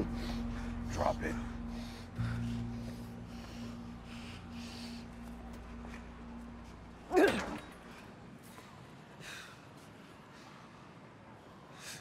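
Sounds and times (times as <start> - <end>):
faint breath: 0.1 - 5.8.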